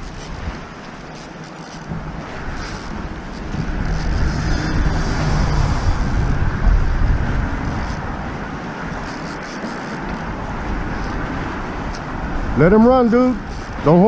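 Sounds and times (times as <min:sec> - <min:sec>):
road traffic rumbling: 0:00.0 - 0:14.0
wind buffeting microphone: 0:00.0 - 0:14.0.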